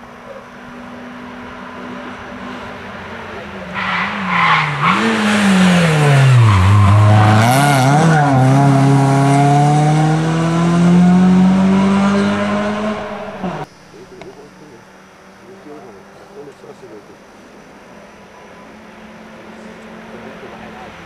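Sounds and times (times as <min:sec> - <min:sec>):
rally car engine revving: 0:00.2 - 0:13.7.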